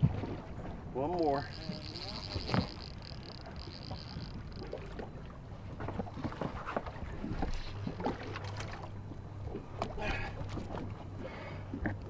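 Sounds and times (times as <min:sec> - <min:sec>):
low steady hum: 0:00.0 - 0:12.0
small waves lapping against hull: 0:00.0 - 0:12.0
fast high ticking: 0:01.4 - 0:04.7.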